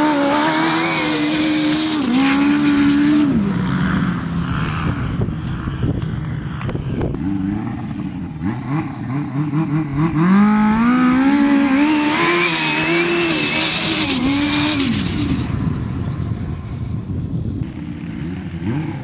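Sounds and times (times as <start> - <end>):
snowmobile engine revving: 0.0 - 5.2, 7.0 - 15.6, 17.7 - 19.0.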